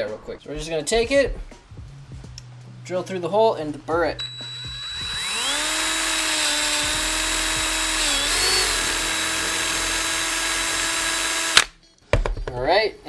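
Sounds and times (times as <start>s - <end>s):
power drill motor whine: 4.2s - 11.7s.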